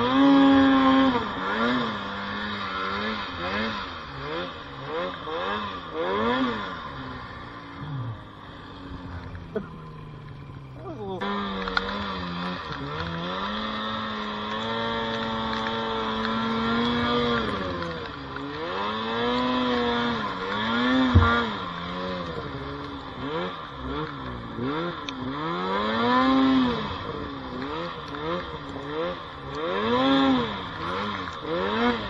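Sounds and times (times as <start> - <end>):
snowmobile engine revving: 0.0 - 32.0
sharp thump: 21.1 - 21.6.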